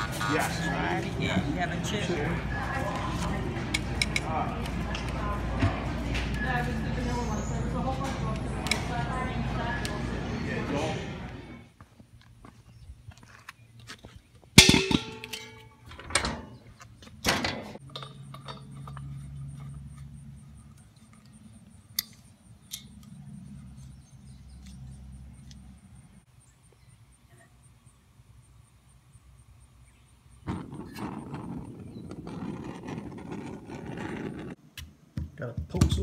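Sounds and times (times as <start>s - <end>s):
metal clang with short ring: 14.6s - 16.5s
metal knocks: 14.6s - 16.6s.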